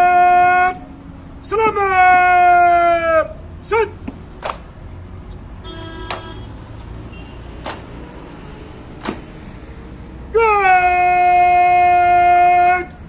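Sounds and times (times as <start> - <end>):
sharp knocks: 7.6 - 7.9, 9.0 - 9.3.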